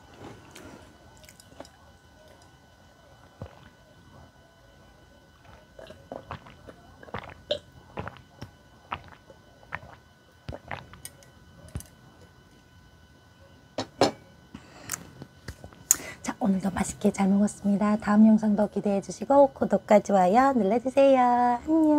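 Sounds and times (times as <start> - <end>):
gulping and swallowing: 3.4 - 3.8, 5.4 - 11.0.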